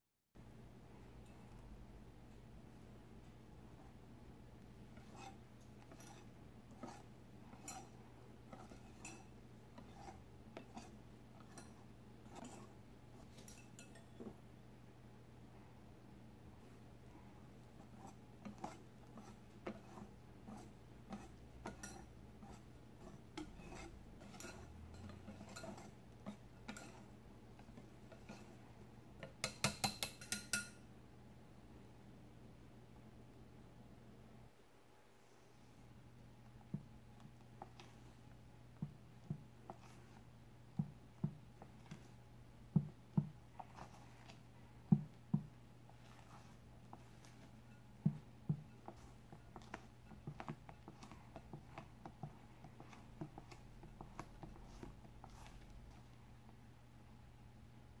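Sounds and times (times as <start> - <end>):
spatula folding batter in bowl: 3.7 - 14.4, 17.6 - 30.8, 36.5 - 56.6
whisk clinking against glass bowl: 5.1 - 12.7, 13.4 - 14.2, 21.1 - 22.6, 23.4 - 27.1, 29.2 - 30.8.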